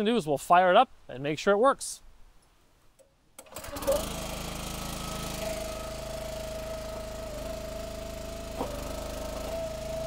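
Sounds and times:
engine starting and running: 3.4s - 10.0s.

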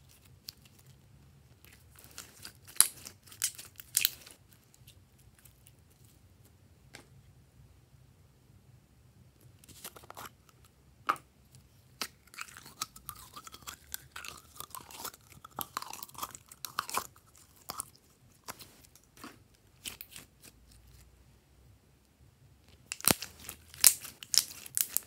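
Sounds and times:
slime crackling and squelching: 0.0s - 5.8s, 11.9s - 21.1s, 22.7s - 25.0s.

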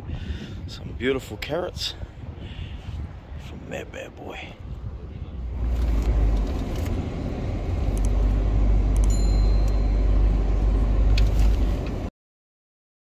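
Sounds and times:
vehicle rumbling on sandy track: 4.8s - 12.1s.

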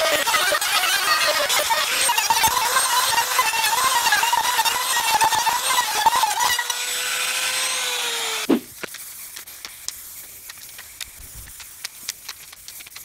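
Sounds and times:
router cutting wood: 0.0s - 8.7s
faint clicks and rustles: 8.8s - 13.0s.

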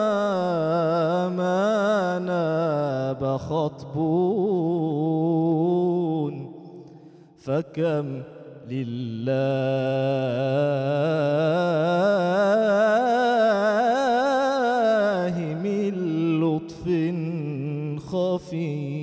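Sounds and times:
man singing devotional chant: 0.0s - 19.0s
singer breathing: 6.8s - 7.4s.

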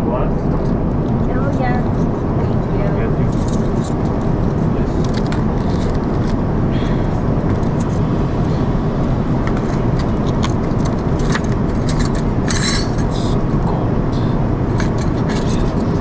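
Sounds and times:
airliner cabin noise: 0.0s - 16.0s.

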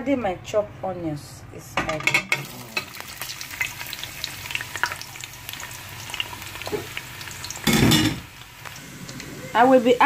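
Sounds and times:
onions sizzling in hot oil: 2.3s - 10.0s.

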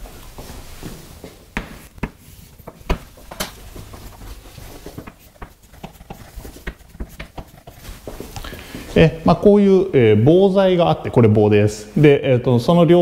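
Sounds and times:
light pen strokes: 4.8s - 8.4s
pen clicks and taps: 5.0s - 8.2s.

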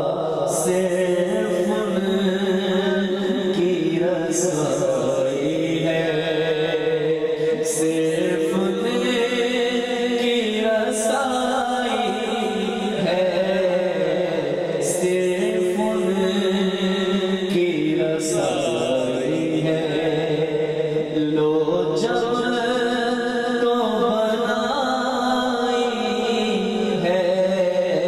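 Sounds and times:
man singing into a microphone: 0.0s - 28.0s.

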